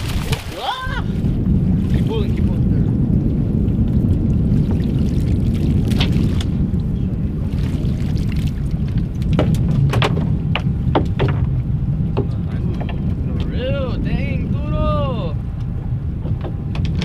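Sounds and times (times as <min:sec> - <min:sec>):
water running off net: 0:00.0 - 0:01.2
wind and water rumble: 0:00.0 - 0:17.0.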